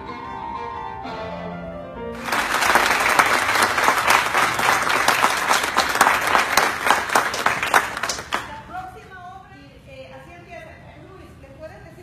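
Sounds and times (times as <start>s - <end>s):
violin and piano piece: 0.0s - 2.1s
audience applause: 2.2s - 8.6s.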